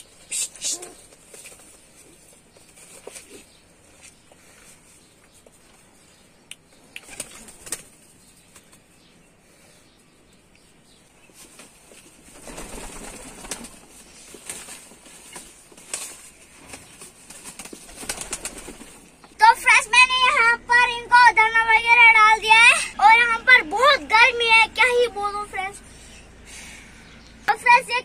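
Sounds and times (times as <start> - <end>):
pigeons flapping wings: 0.6 - 3.4, 7.0 - 8.9, 11.4 - 19.2.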